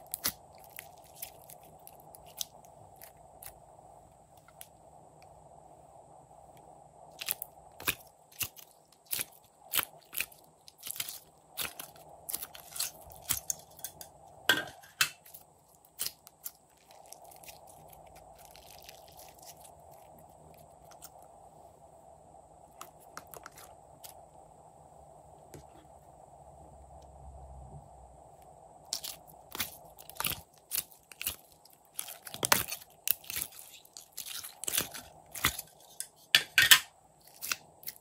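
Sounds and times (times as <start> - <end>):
slime popping and crackling: 0.0 - 3.6, 7.1 - 14.1, 15.2 - 21.2, 28.9 - 35.8.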